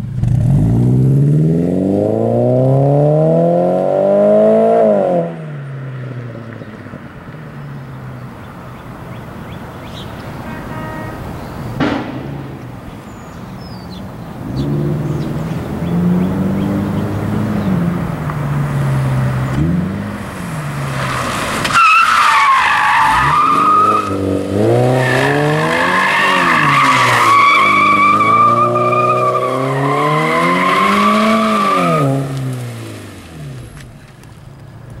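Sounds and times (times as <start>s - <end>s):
car engine revving: 0.0s - 7.0s, 11.8s - 33.9s
tire squeal: 20.9s - 32.4s.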